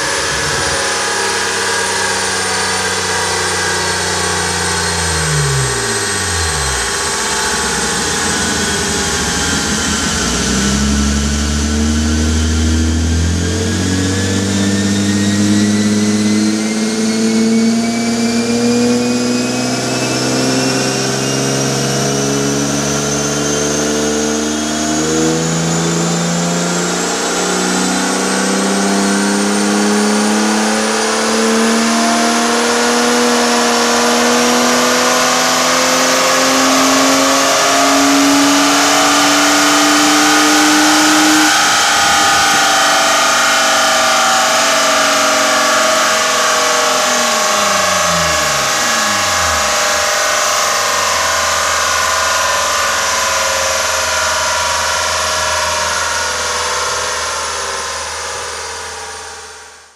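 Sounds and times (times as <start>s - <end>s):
car engine revving under load: 0.0s - 59.3s
thin rising whine: 0.0s - 59.9s.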